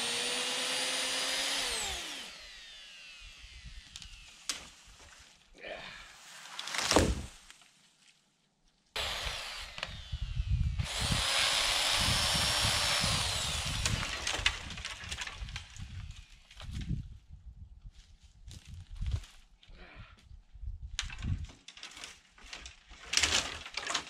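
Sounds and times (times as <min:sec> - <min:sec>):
chainsaw cutting tree: 0:00.0 - 0:04.4, 0:09.0 - 0:14.8
wood crackling and snapping: 0:13.2 - 0:16.8, 0:20.9 - 0:24.0.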